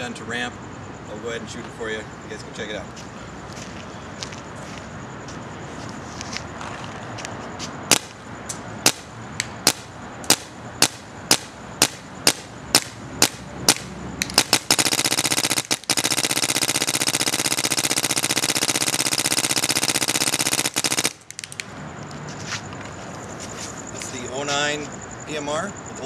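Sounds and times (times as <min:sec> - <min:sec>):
paintball marker firing: 0:07.9 - 0:08.2, 0:08.8 - 0:21.7.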